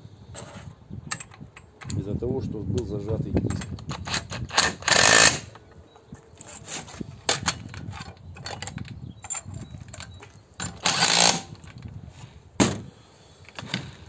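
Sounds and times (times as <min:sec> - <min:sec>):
tools knocking and clinking: 0:03.4 - 0:04.4, 0:07.3 - 0:11.9.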